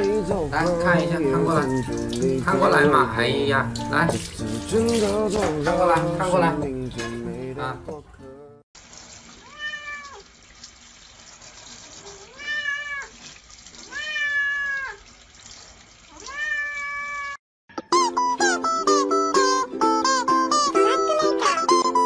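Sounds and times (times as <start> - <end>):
plucked-string music: 0.0 - 8.6, 17.8 - 22.0
cat meowing: 1.2 - 2.1, 9.4 - 10.2, 12.2 - 13.2, 13.9 - 15.0, 16.1 - 17.4, 20.8 - 21.8.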